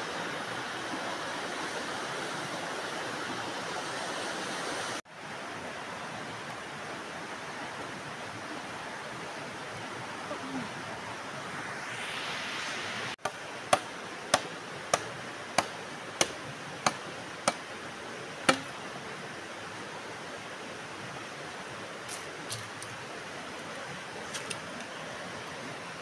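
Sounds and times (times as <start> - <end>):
stream flowing: 0.0 - 26.0
machete chopping bamboo: 13.2 - 17.6, 18.5 - 18.8.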